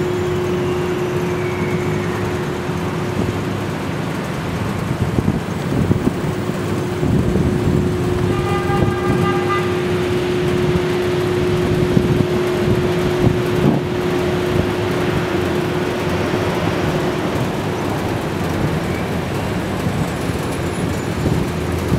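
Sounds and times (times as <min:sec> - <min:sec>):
city traffic: 0:00.0 - 0:21.9
car horn: 0:08.0 - 0:11.8.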